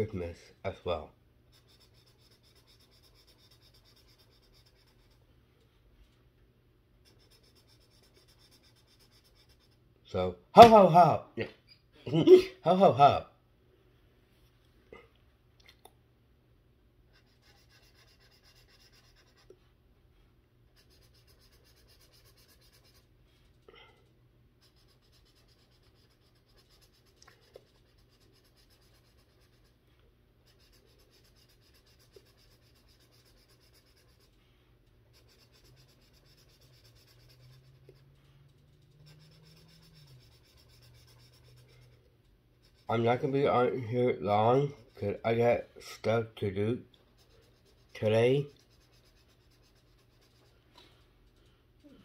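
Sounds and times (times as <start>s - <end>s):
marker rubbing on paper: 1.5s - 5.2s, 7.0s - 9.8s, 17.1s - 19.6s, 20.8s - 23.1s, 24.6s - 29.8s, 30.4s - 34.4s, 35.1s - 42.0s, 42.6s - 46.0s, 47.1s - 50.6s.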